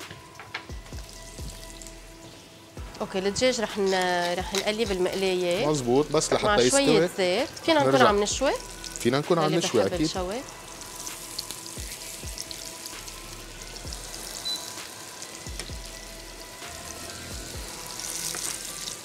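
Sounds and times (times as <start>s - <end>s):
meat sizzling in a frying pan: 0.0s - 19.0s.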